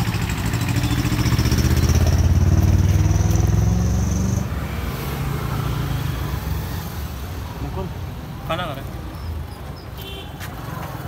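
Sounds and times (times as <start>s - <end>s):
motorcycle engine running: 0.0s - 3.7s
street traffic: 0.0s - 11.0s.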